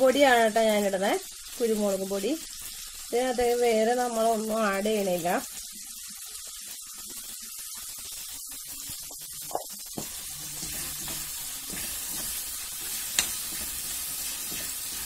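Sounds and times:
vegetables sizzling in oil: 0:00.0 - 0:15.0
steel spoon clicking on pan: 0:10.6 - 0:13.8.

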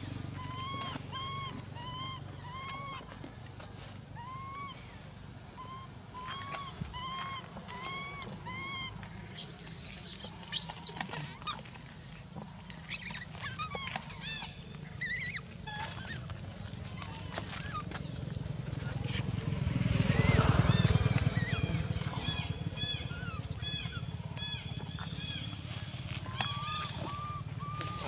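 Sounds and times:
harsh monkey screech: 0:00.3 - 0:03.0, 0:04.2 - 0:04.9, 0:05.6 - 0:11.6, 0:12.9 - 0:16.2, 0:26.3 - 0:28.0
infant monkey crying: 0:00.3 - 0:03.1, 0:04.2 - 0:05.0, 0:05.6 - 0:11.6, 0:12.9 - 0:16.3, 0:20.2 - 0:24.6, 0:26.3 - 0:28.0.

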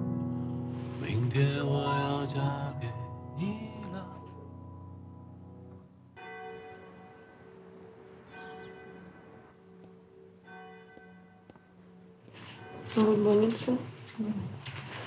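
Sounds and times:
soft bell-like chime tones: 0:06.2 - 0:13.8.

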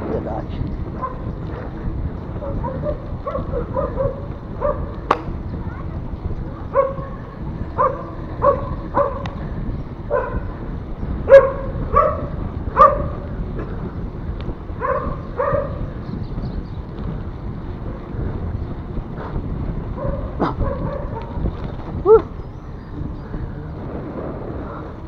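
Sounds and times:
wind and road noise: 0:00.0 - 0:25.0
dog barking: 0:01.0 - 0:01.7, 0:02.4 - 0:04.9, 0:06.7 - 0:07.2, 0:07.8 - 0:09.3, 0:10.1 - 0:10.5, 0:11.3 - 0:13.2, 0:14.8 - 0:15.8, 0:20.0 - 0:21.4.

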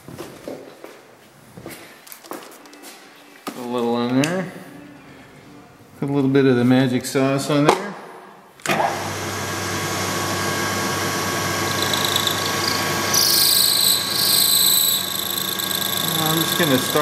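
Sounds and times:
milling machine spindle running: 0:08.9 - 0:17.0
high-pitched whine and hiss: 0:11.4 - 0:17.0.

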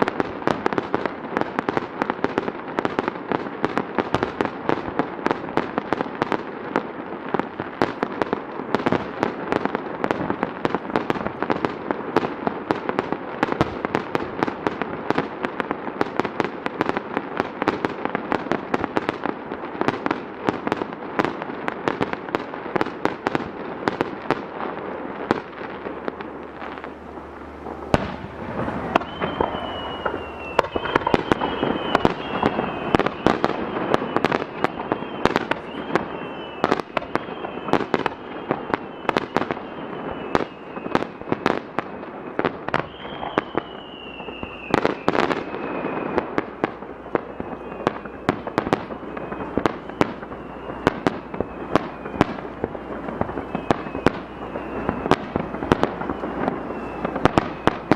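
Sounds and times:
fireworks bursting: 0:00.0 - 0:57.9
whistles sliding down in pitch: 0:27.2 - 0:41.1, 0:42.8 - 0:46.3, 0:47.2 - 0:55.3, 0:56.0 - 0:57.9.

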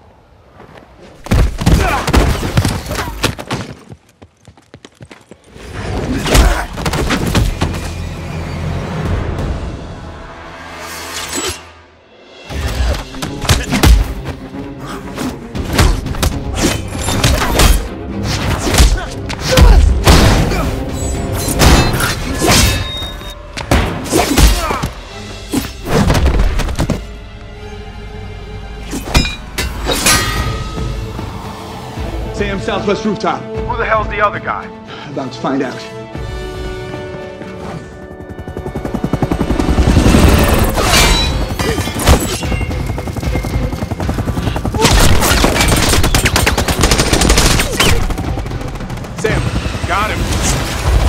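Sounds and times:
dramatic film score: 0:05.5 - 0:51.0
action music: 0:06.6 - 0:51.0
helicopter sweeping past: 0:37.7 - 0:40.8, 0:42.4 - 0:44.8, 0:48.0 - 0:51.0
rapid gunfire: 0:43.7 - 0:51.0.

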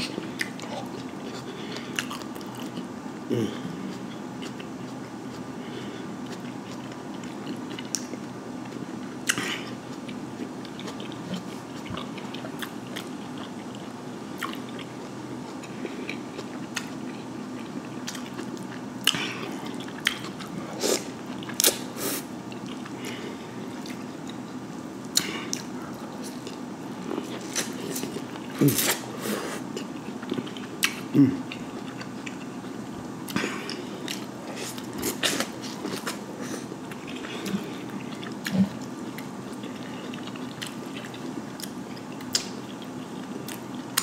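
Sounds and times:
chewing and lip smacking: 0:06.2 - 0:21.9, 0:22.5 - 0:23.1, 0:25.1 - 0:29.1, 0:29.7 - 0:44.0.

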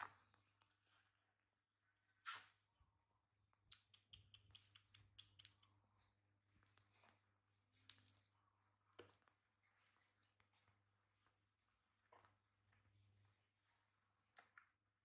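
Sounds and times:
light clicks and taps: 0:03.6 - 0:05.8.

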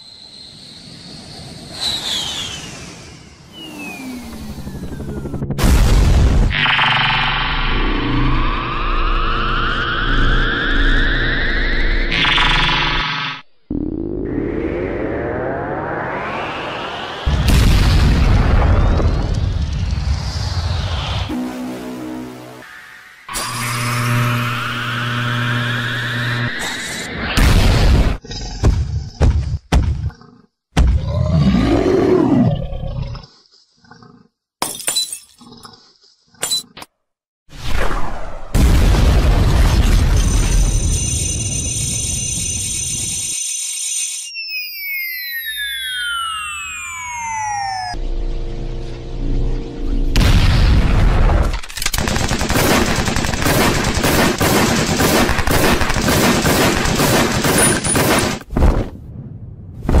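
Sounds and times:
dinosaur roar: 0:31.0 - 0:34.3
gunfire volleys: 0:51.3 - 0:58.9.

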